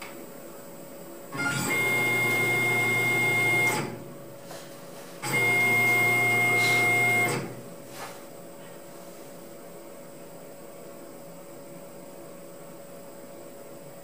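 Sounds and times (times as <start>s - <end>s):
machine hum: 0.0s - 9.9s
mill axis drives whining: 5.2s - 7.7s.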